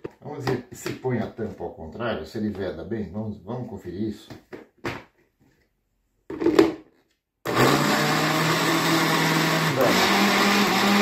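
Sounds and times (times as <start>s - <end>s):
blender motor running: 7.4s - 11.0s
water churning in blender: 7.5s - 11.0s.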